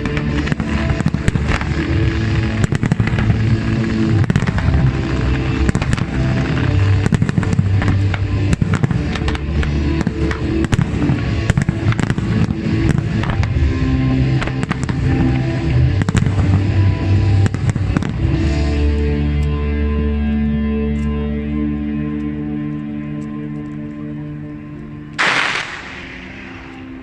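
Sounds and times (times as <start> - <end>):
fireworks bursting: 0.0 - 18.9, 25.2 - 27.0
loud music: 0.0 - 22.6, 25.2 - 27.0.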